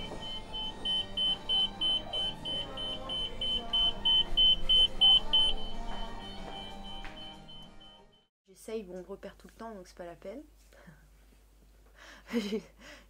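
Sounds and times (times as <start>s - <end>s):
security gate alarm beeping: 0.0s - 8.3s.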